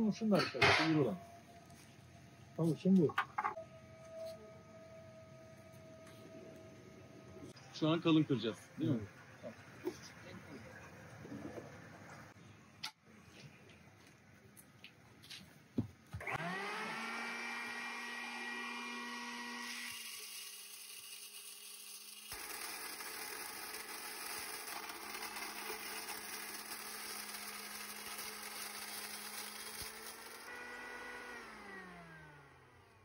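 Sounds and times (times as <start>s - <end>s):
electric motor whining and humming: 16.2s - 33.0s
grain grinding: 19.9s - 30.6s.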